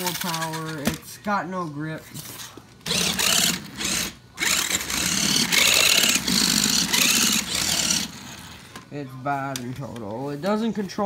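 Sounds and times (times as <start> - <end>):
toy car motor whirring: 2.8 - 8.6.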